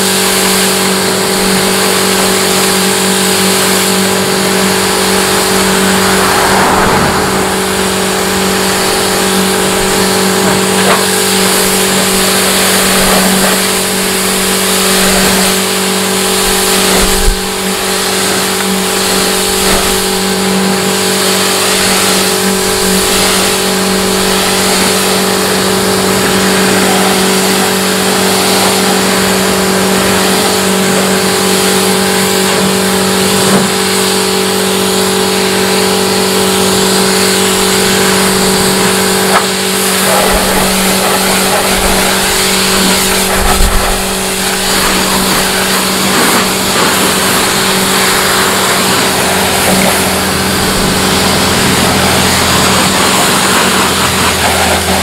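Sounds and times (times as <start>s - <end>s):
machine motor humming: 0.0s - 55.0s.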